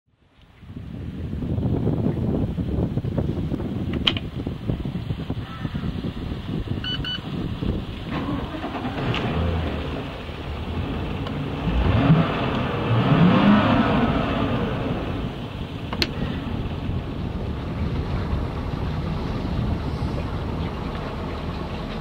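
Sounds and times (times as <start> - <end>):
short electronic beeps: 6.8 - 7.2
boat engine revving: 7.2 - 22.0.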